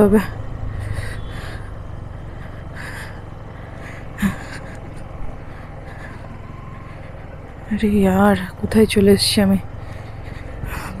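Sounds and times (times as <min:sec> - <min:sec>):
motorcycle engine running low: 0:00.0 - 0:11.0
person breathing sharply: 0:00.3 - 0:07.6, 0:09.7 - 0:11.0.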